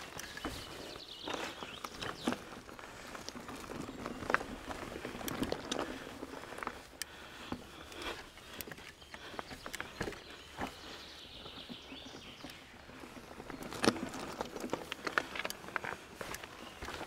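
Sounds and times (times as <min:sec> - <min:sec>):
bike clicks and knocks: 0:00.0 - 0:10.8
bike tyres crunching over soil: 0:00.0 - 0:17.0.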